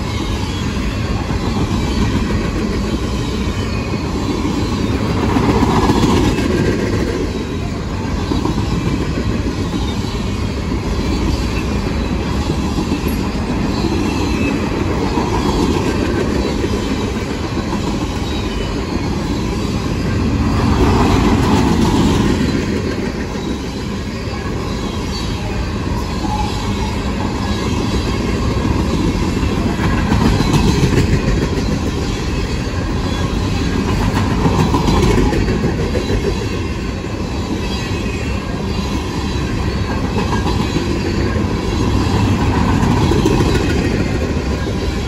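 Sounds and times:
freight train wheels clattering: 0.0s - 45.0s.

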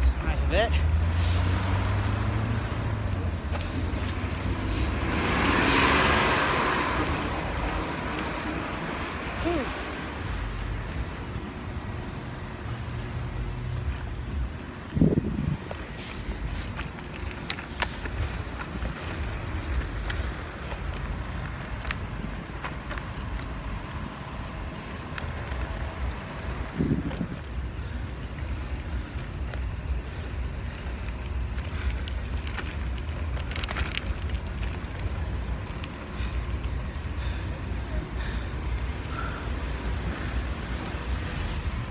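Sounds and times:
wheels rolling on road: 0.0s - 41.9s
wind buffeting microphone: 14.4s - 16.0s, 26.6s - 27.5s.

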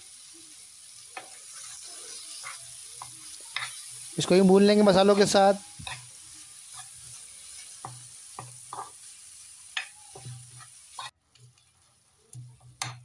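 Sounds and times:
vegetables sizzling in oil: 0.0s - 13.0s
metal spoon scraping a pan: 1.2s - 4.2s, 5.0s - 9.1s, 9.7s - 13.0s.

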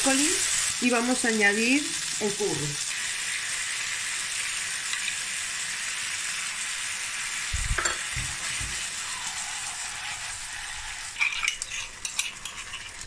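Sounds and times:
food sizzling in frying pan: 0.0s - 13.0s.

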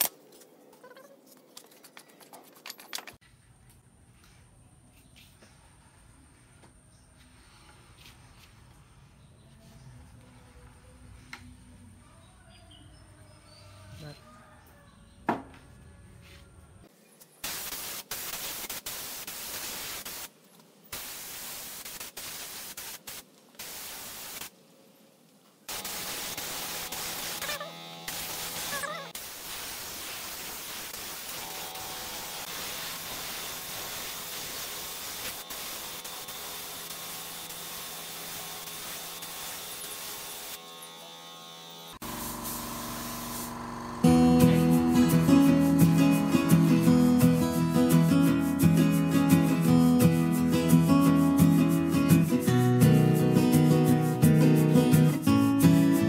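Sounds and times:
spray gun hissing: 17.4s - 20.3s, 20.9s - 24.5s, 25.7s - 40.6s, 42.0s - 49.0s
guitar music: 44.0s - 56.0s.

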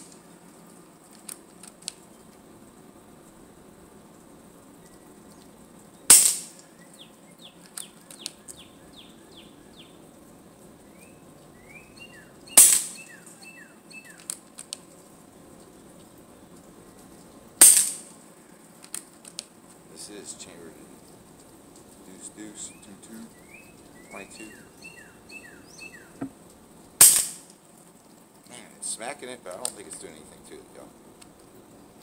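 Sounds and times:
small bird chirping: 4.7s - 10.0s, 10.8s - 14.3s, 22.4s - 26.3s
air rifle shots: 6.1s - 6.6s, 12.6s - 13.1s, 17.6s - 18.1s, 27.0s - 27.5s.

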